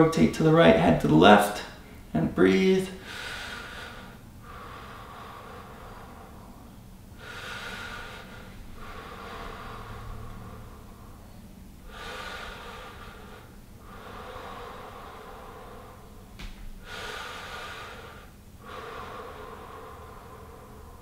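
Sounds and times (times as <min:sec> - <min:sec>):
man breathing deeply: 0:03.0 - 0:21.0.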